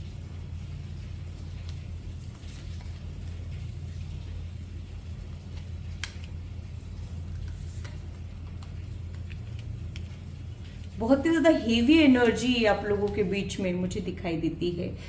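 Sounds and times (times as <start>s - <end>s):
steady low hum: 0.0s - 15.0s
cards clicking and tapping: 5.5s - 6.4s, 7.3s - 10.2s.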